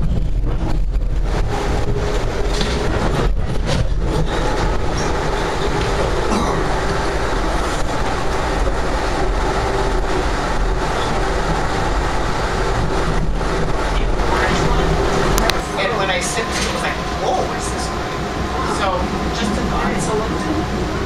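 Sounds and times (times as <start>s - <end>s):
low hum: 0.0s - 21.0s
train wheels rumbling on rails: 0.0s - 21.0s.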